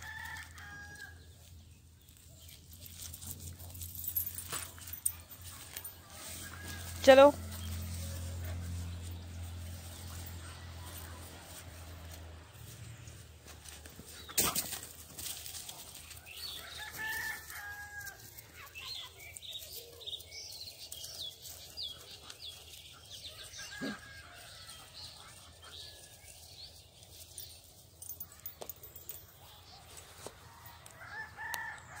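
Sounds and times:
rooster crowing: 0.0 - 1.2, 6.1 - 7.6, 16.6 - 18.3, 23.4 - 24.8, 30.6 - 32.0.

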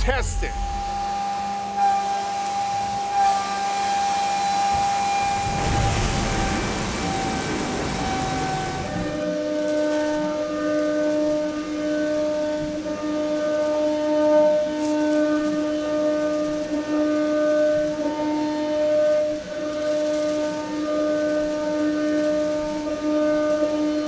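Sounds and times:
milling machine cutter whine: 0.0 - 9.5
hissing spray: 0.5 - 9.2.

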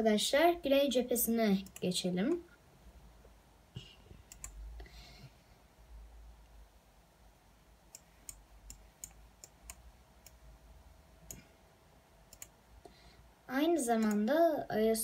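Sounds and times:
computer mouse clicks: 1.6 - 2.4, 4.3 - 4.9, 7.9 - 10.4, 12.3 - 13.0, 14.0 - 14.3.

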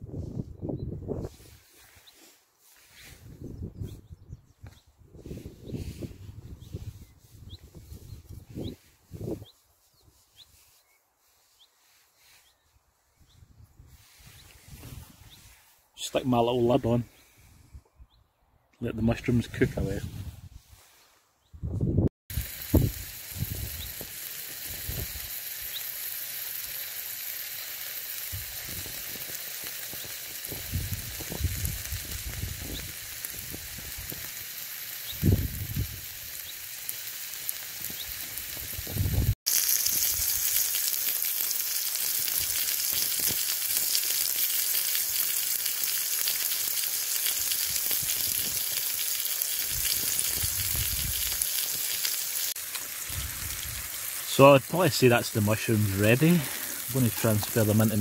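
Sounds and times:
mushrooms sizzling in oil: 22.3 - 58.0.

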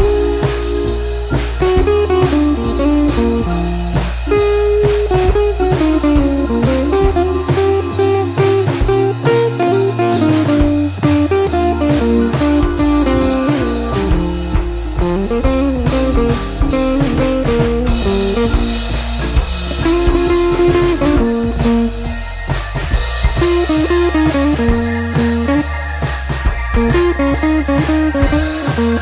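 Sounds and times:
guitar-led instrumental music: 0.0 - 29.0.

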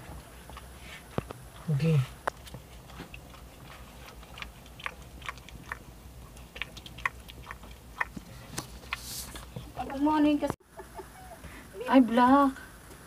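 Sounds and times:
dog licking and chewing: 0.0 - 10.0.

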